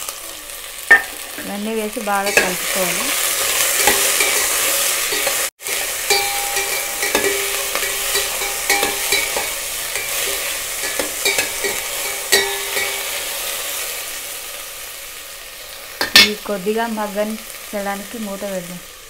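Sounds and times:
vegetables sizzling in hot oil: 0:00.0 - 0:19.0
utensil knocking against steel pot: 0:06.1 - 0:10.2, 0:10.8 - 0:13.0.

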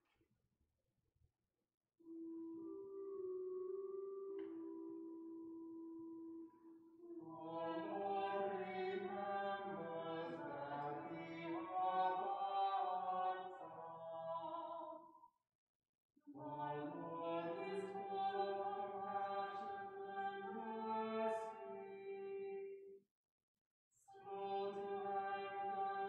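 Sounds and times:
choir singing slow chant: 0:07.0 - 0:15.0, 0:16.3 - 0:22.8, 0:24.1 - 0:26.0.

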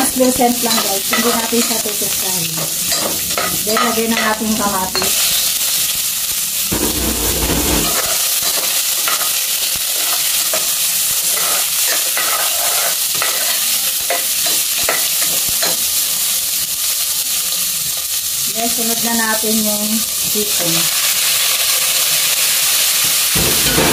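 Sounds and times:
onion and tomato sizzling in oil: 0:00.0 - 0:23.9
spatula scraping and tapping pan: 0:11.3 - 0:15.8.

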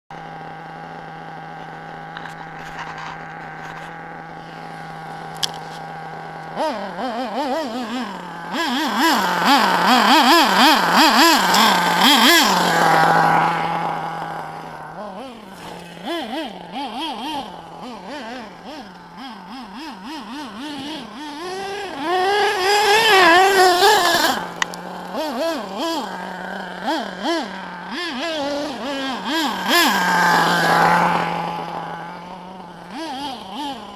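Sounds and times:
rc truck nitro engine revving: 0:00.1 - 0:33.9.

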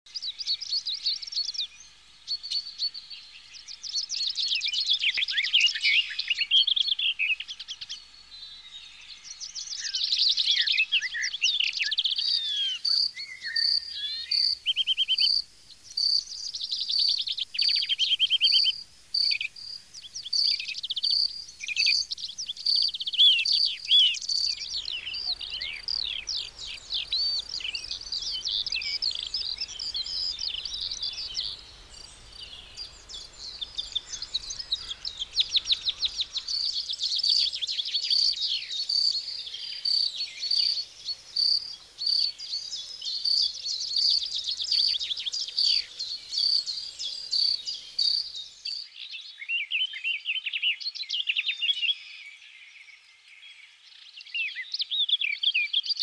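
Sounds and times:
songbirds twittering: 0:00.1 - 0:56.0
high bird chirp: 0:09.8 - 0:50.8.

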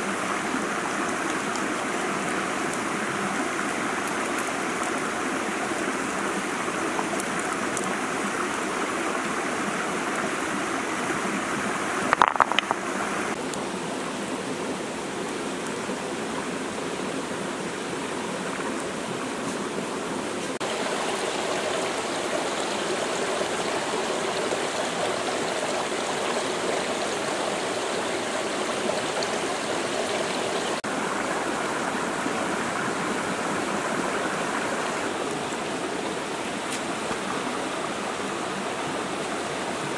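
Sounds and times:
stream flowing over rocks: 0:00.0 - 0:39.9
clatter of sharp knocks: 0:12.1 - 0:12.8.

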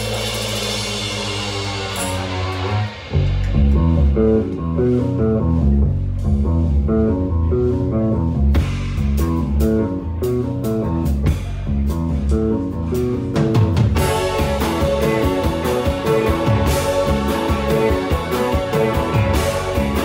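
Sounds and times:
cymbals washing: 0:00.0 - 0:04.0, 0:14.0 - 0:20.0
live rock band playing: 0:00.0 - 0:20.0.

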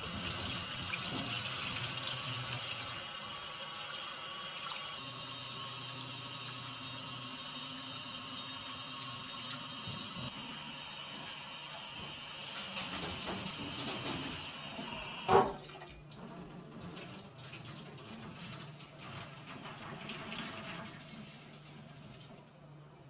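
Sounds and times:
tap water into metal sink: 0:11.9 - 0:16.3.

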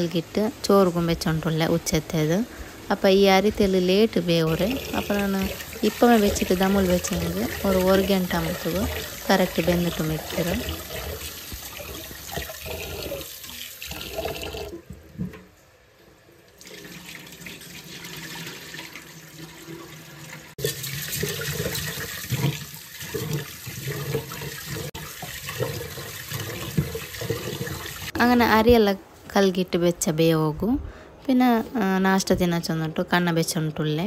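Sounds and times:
running tap water: 0:00.0 - 0:15.5, 0:16.4 - 0:28.4
water poured into a sink: 0:04.5 - 0:15.5, 0:16.5 - 0:28.2
water splashing in a pot: 0:04.5 - 0:15.5, 0:16.5 - 0:28.2.

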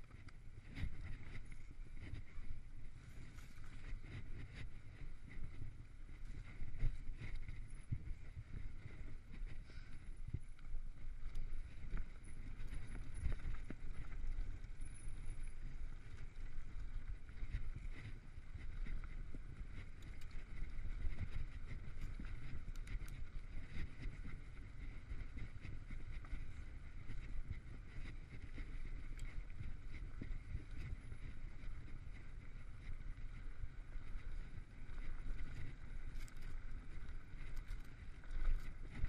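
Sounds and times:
bike clicks and rattles: 0:00.0 - 0:39.0
wind and tyres rumbling: 0:00.0 - 0:39.0.

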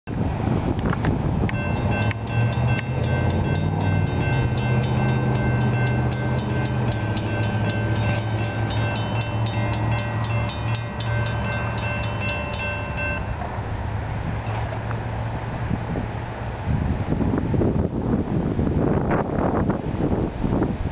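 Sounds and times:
wind buffeting microphone: 0:00.1 - 0:20.9
railroad crossing bells ringing: 0:01.5 - 0:13.7.

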